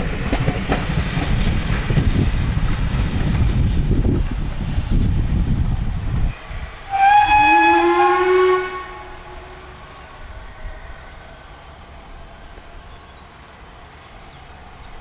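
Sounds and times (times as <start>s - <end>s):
faint train rumble: 0.0s - 15.0s
steam locomotive whistle: 6.8s - 9.8s.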